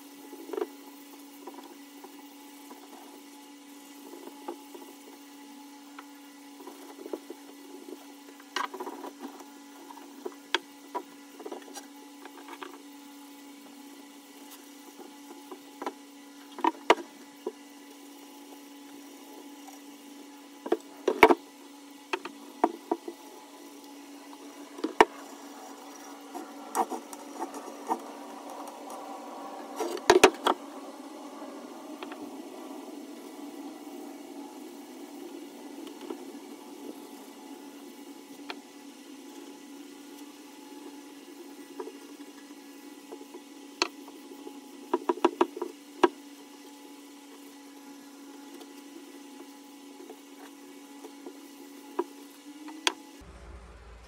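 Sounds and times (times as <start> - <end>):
steady low hum: 19.2 - 42.7, 52.6 - 54.0.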